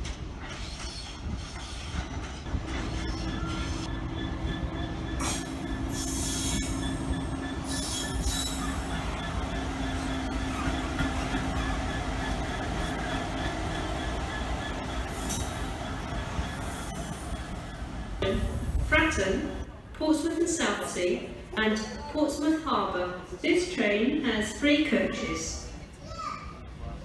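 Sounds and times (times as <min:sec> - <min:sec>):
diesel locomotive engine drone: 0:00.0 - 0:25.9
wheels squealing on rails: 0:00.3 - 0:18.4.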